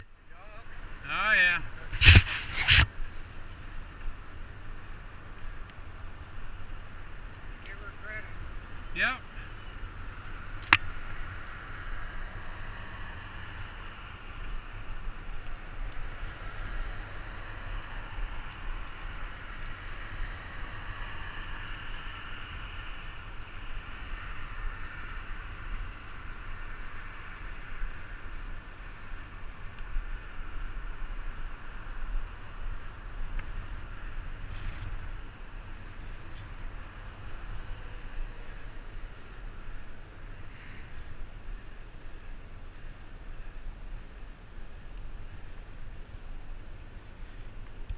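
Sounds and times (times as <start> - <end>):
highway traffic rushing: 0.0 - 47.9.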